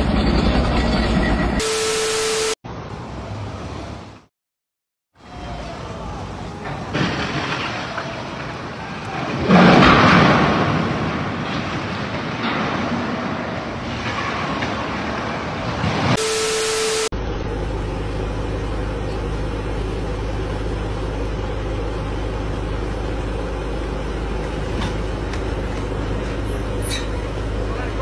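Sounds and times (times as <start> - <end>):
forklift engine droning: 0.0 - 2.6, 16.2 - 28.0
street traffic noise: 0.0 - 4.3, 5.2 - 28.0
loud hiss with steady tone: 16.2 - 17.1.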